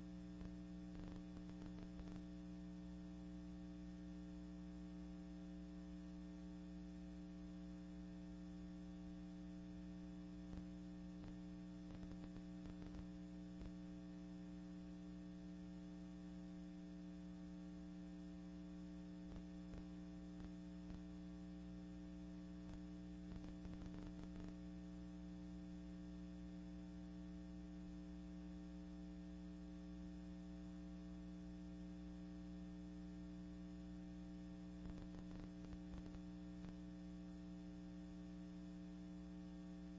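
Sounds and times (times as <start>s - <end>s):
electrical mains hum: 0.0s - 39.9s
soft crackles: 0.4s - 2.3s, 10.5s - 13.8s, 22.6s - 24.6s, 34.8s - 36.8s.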